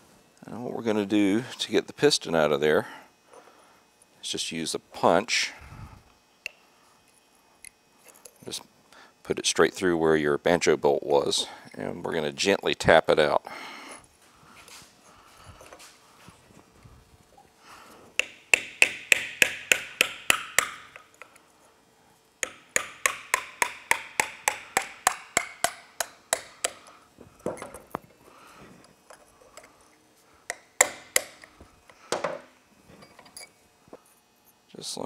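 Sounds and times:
hammer tapping steel punch: 0:18.2 - 0:21.4, 0:22.4 - 0:27.9, 0:30.5 - 0:31.5.

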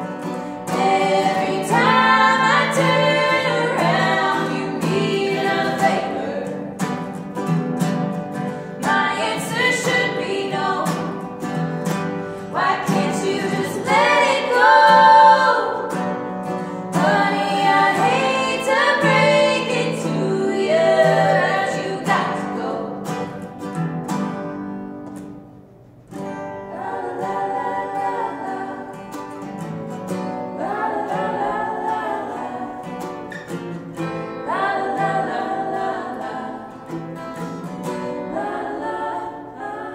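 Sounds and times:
strummed acoustic guitars: 0:00.0 - 0:39.9
women singing: 0:00.6 - 0:07.2, 0:08.8 - 0:16.2, 0:16.8 - 0:23.4, 0:26.7 - 0:29.4, 0:30.4 - 0:33.5, 0:34.3 - 0:37.0, 0:37.8 - 0:39.9.

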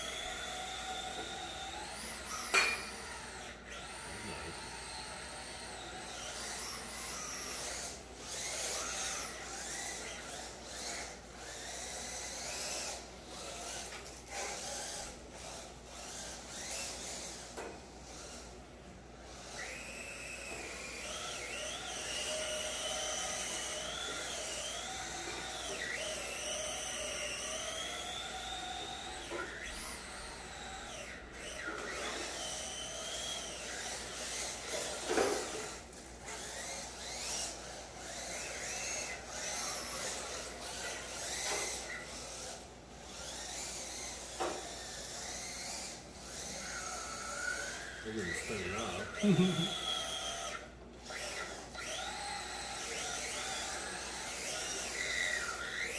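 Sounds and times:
electric motors whining: 0:00.0 - 0:55.9.

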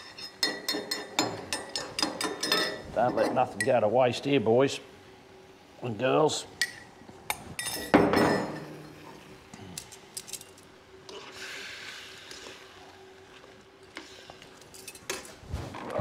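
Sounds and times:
utensil clinking against bowl: 0:00.0 - 0:03.8
soft sizzle: 0:08.6 - 0:15.8.

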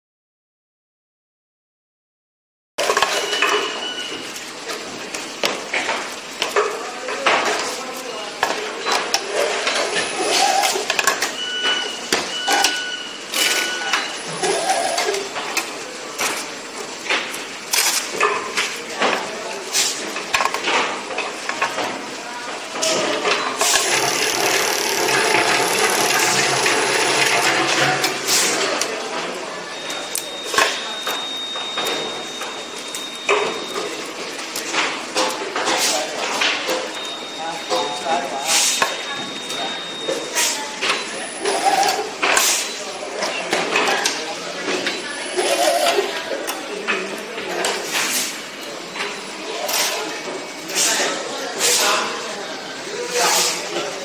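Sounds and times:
workshop noise: 0:02.8 - 0:54.0
machine whirring with hum: 0:23.4 - 0:28.9.

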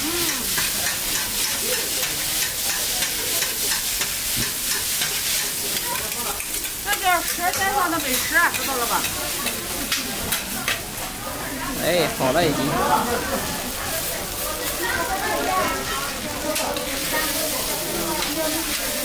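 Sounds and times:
food sizzling in a pan: 0:00.0 - 0:19.0
faint voices: 0:05.6 - 0:19.0.

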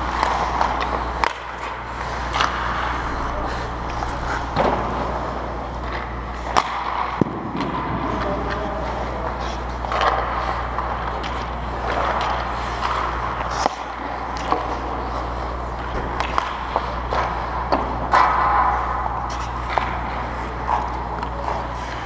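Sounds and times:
sticks and puck clicking: 0:00.0 - 0:03.6, 0:16.2 - 0:20.0
skates scraping on ice: 0:00.0 - 0:22.0
steady low hum: 0:00.0 - 0:22.0.

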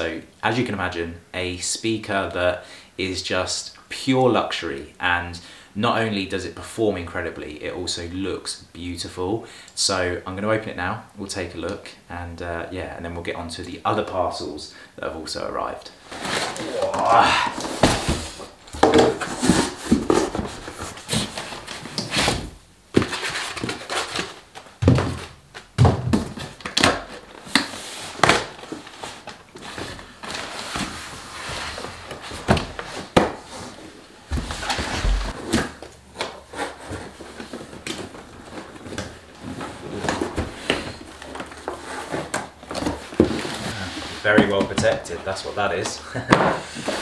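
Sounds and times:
cardboard box scraping: 0:16.0 - 0:24.2, 0:36.4 - 0:44.5.

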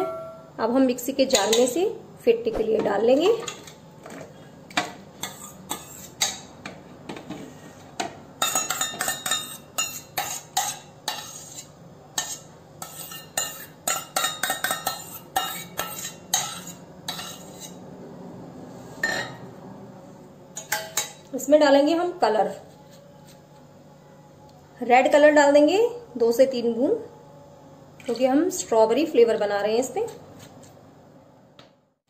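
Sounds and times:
kitchen utensils clinking and scraping: 0:05.2 - 0:06.5, 0:08.4 - 0:17.8.

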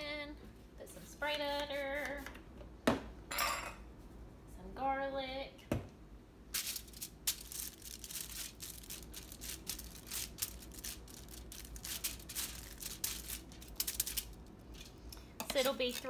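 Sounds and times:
foil crinkling: 0:06.6 - 0:16.0.

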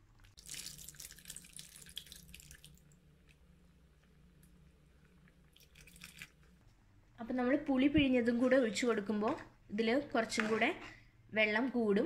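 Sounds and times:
liquid pouring into pan: 0:00.3 - 0:03.0, 0:05.4 - 0:06.4.

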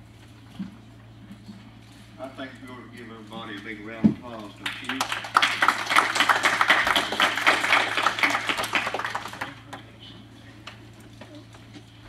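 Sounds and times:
people applauding: 0:04.4 - 0:10.0.

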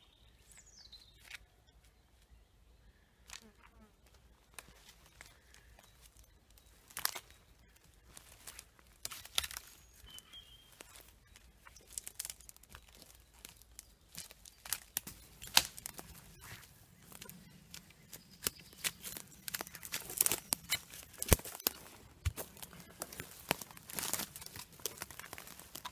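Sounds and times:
twigs snapping underfoot: 0:01.2 - 0:01.5, 0:03.2 - 0:25.9.

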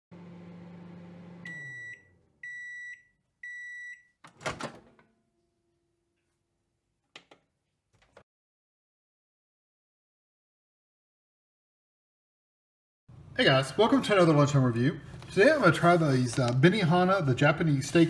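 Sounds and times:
microwave oven humming: 0:00.1 - 0:03.8
high microwave beeps: 0:01.4 - 0:04.2.

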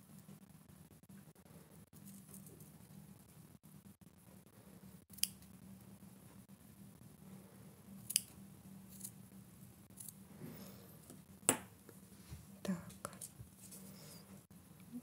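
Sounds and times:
scissors snipping: 0:08.0 - 0:08.3.

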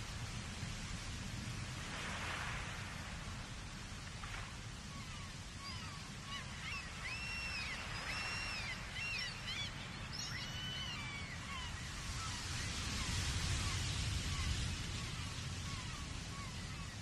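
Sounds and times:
seagulls calling: 0:05.1 - 0:12.4.

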